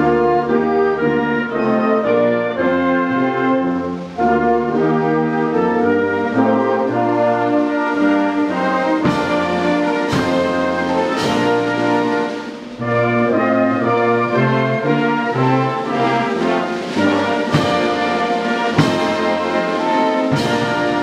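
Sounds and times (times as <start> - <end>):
brass band playing: 0.0 - 21.0
drum and cymbal hits: 8.4 - 12.9, 14.8 - 21.0.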